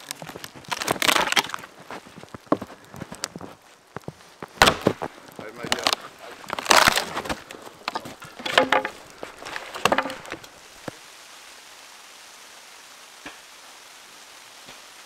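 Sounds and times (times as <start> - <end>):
wood cracking and splintering: 0.0 - 10.9
fire hissing in wood stove: 10.4 - 15.0.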